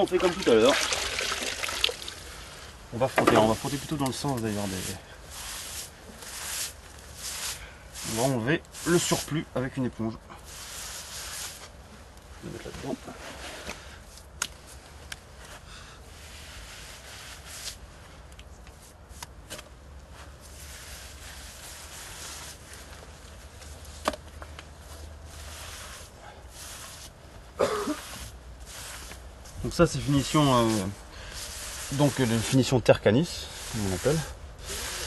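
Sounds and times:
sponge scrubbing plaster: 0.0 - 2.0, 3.3 - 9.4, 30.2 - 35.0.

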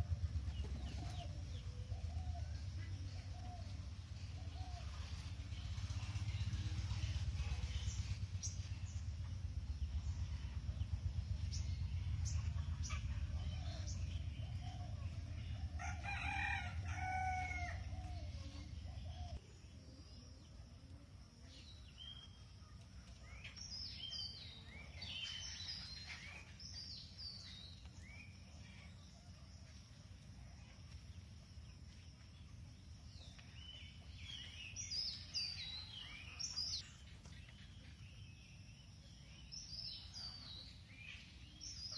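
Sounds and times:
small birds chirping: 0.0 - 41.9
steady low rumble: 0.0 - 41.9
rooster crowing: 15.8 - 18.2.

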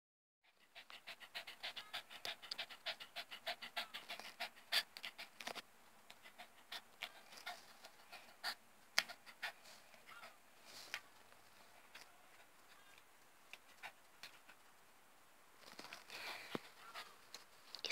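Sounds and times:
dog panting: 0.5 - 10.4.

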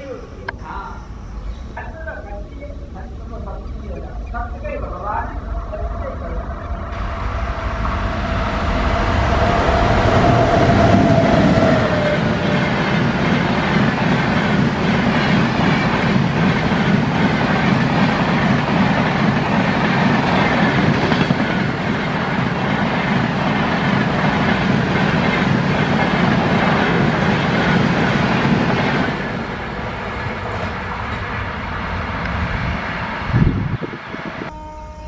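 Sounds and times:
train passing with wheel clatter: 0.0 - 34.8
distant train horn: 4.5 - 13.1, 34.4 - 35.0.

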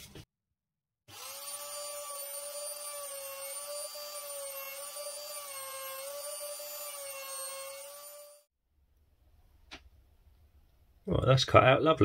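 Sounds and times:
trim router high whine: 1.1 - 8.4.

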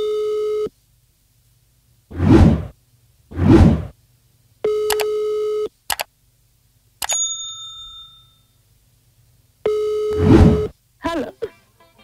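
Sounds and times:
mouse click: 4.9 - 5.1.

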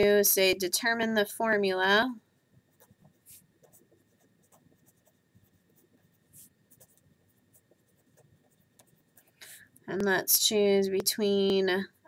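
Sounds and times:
marker scratching on paper: 2.7 - 9.6.

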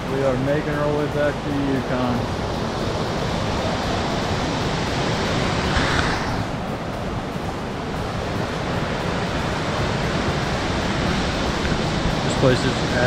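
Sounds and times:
creek rushing over rocks: 3.4 - 6.7.

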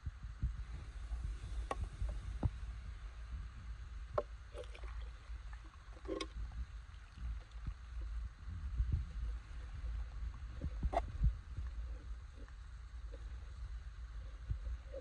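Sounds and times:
mountain stream running: 4.2 - 15.0.

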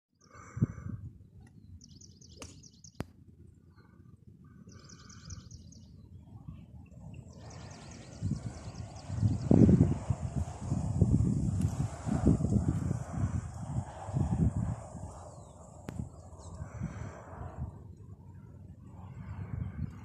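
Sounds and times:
low rumble of wind noise: 0.2 - 20.0
small birds chirping: 1.4 - 3.0, 4.6 - 6.2, 6.8 - 9.8.

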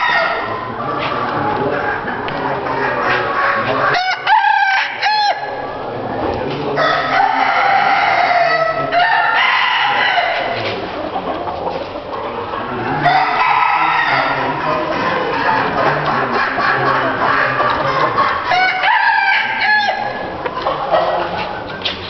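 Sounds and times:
roosters crowing: 0.0 - 0.8, 1.8 - 5.9, 6.7 - 10.8, 12.6 - 21.3
din of poultry: 0.0 - 22.0.

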